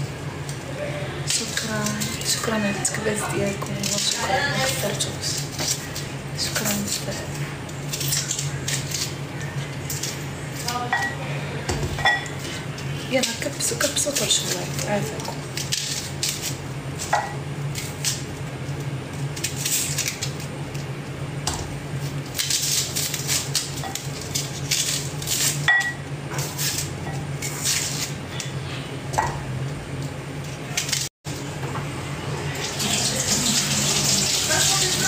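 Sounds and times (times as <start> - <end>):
steady low hum: 0.0 - 33.9
knife and dishes clinking: 9.9 - 12.6, 22.4 - 28.6
tap water running into sink: 32.6 - 35.0.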